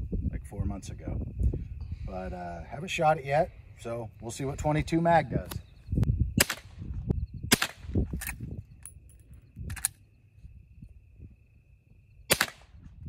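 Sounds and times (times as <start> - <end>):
rifle shots cracking: 6.4 - 6.7, 7.5 - 7.9, 12.3 - 12.8.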